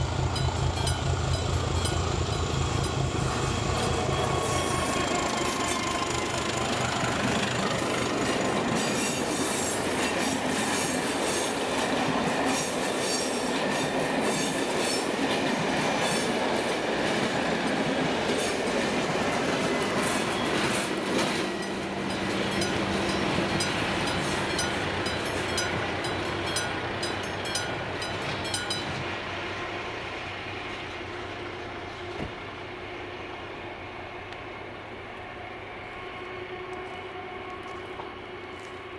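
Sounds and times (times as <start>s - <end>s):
train wheels clattering over rails: 0.0s - 29.2s.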